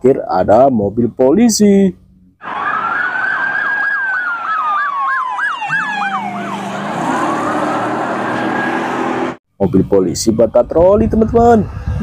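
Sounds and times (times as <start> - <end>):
police siren wailing and yelping: 2.4 - 9.4.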